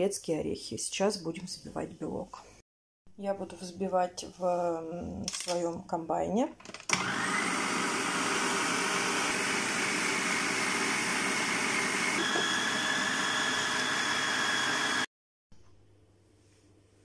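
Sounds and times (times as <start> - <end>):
food processor motor whine: 6.9 - 15.1.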